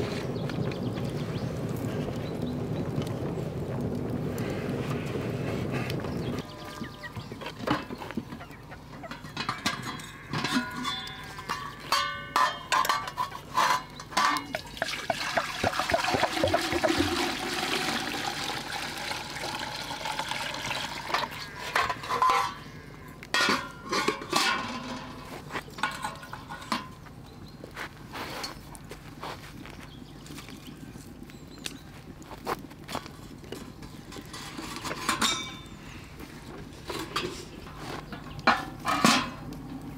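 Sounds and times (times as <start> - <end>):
water pouring from jug: 14.6 - 21.4.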